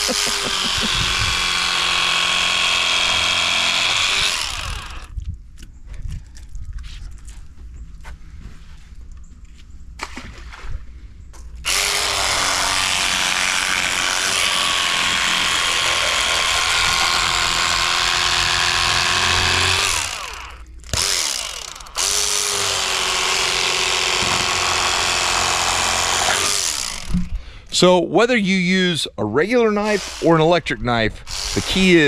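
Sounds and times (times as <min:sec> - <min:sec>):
electric fillet knife motor humming: 0:00.0 - 0:05.1, 0:11.7 - 0:27.3, 0:29.8 - 0:30.5, 0:31.3 - 0:32.0.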